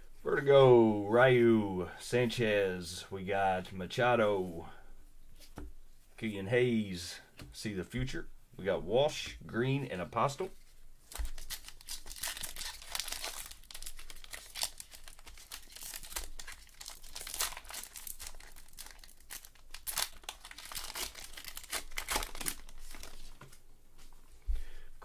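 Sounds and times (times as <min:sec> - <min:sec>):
foil wrapper crinkling and tearing: 0:11.1 - 0:23.4.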